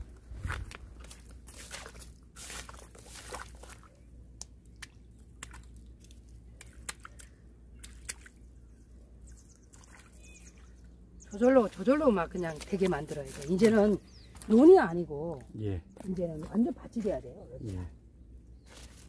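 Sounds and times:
footsteps squishing in wet mud: 0.4 - 10.7, 11.5 - 14.8, 18.7 - 19.0.

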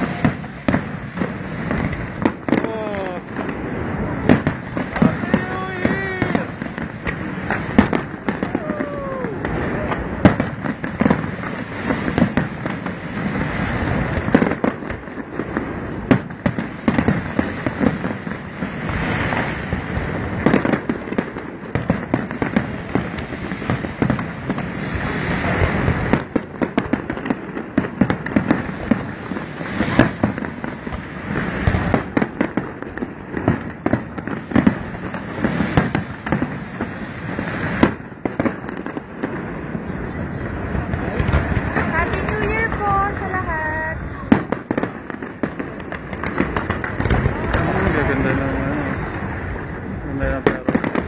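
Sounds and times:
fireworks booming and crackling: 0.0 - 51.0.

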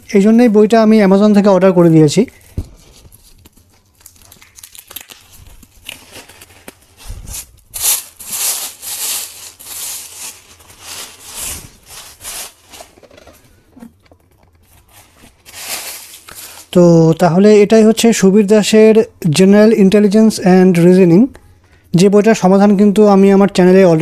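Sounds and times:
plastic packaging crinkling: 1.8 - 17.2.

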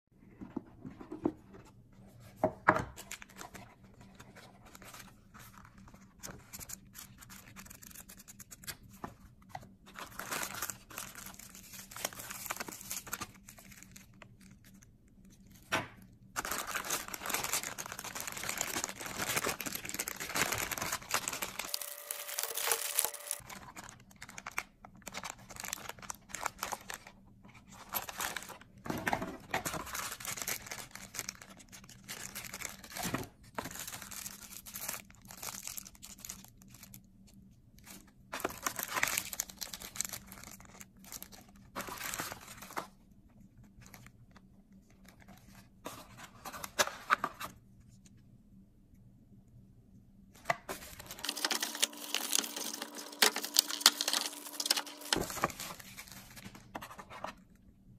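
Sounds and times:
plastic bags crinkling: 9.9 - 14.8, 16.4 - 27.2, 29.6 - 37.0, 38.4 - 42.8, 50.7 - 56.5.

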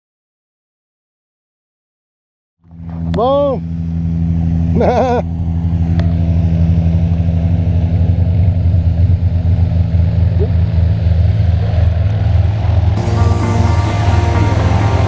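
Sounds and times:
propeller plane engine droning: 2.6 - 15.0
music: 13.0 - 15.0.

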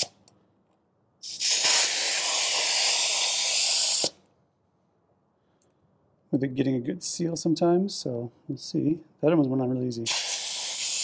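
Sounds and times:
air hissing from tire valve: 1.2 - 4.2, 10.1 - 11.0.

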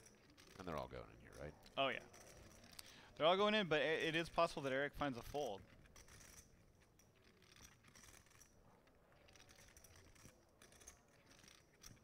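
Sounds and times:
poker chips clicking: 5.2 - 12.0.

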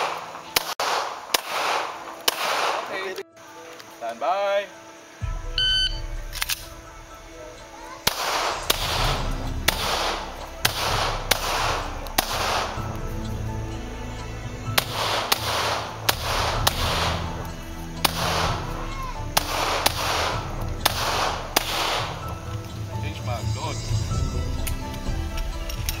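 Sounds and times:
pistol shots with echo: 0.0 - 3.2, 8.0 - 12.9, 14.8 - 17.4, 18.0 - 18.7, 19.4 - 22.2.

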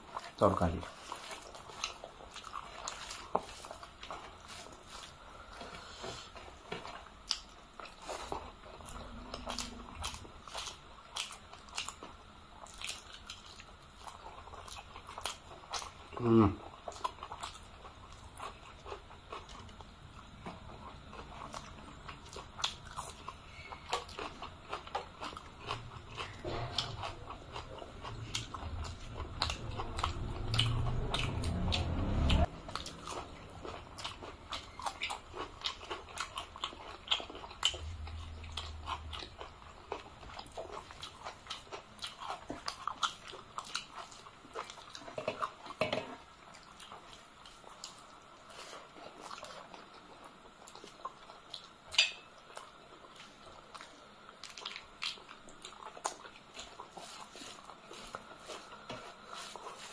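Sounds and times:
chewing and lip smacks: 0.1 - 59.8
low rumble: 26.4 - 34.2, 37.6 - 40.0.

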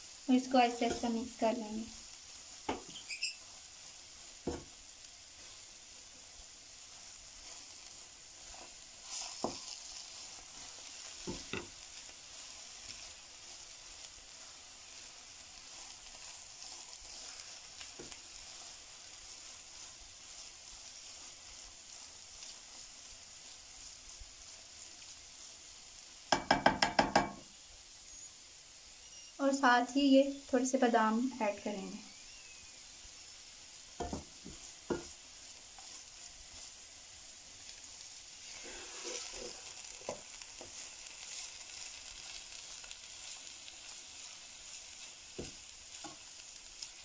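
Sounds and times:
food sizzling in a pan: 0.0 - 47.0
spatula stirring: 0.5 - 27.4, 33.6 - 47.0
spatula knocking against pan: 26.3 - 27.4.

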